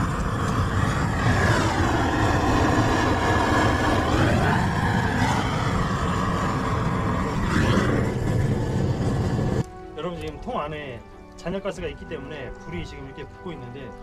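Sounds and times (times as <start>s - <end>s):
gas torch roaring: 0.0s - 10.8s.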